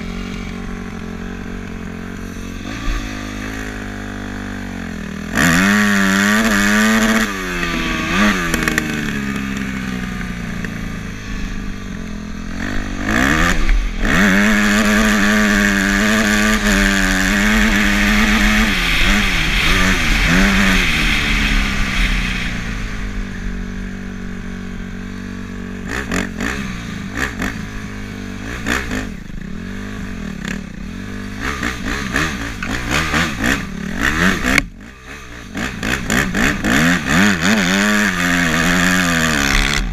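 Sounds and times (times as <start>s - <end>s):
off-road vehicle engine revving: 0.0s - 39.9s
wind rush: 13.2s - 24.4s.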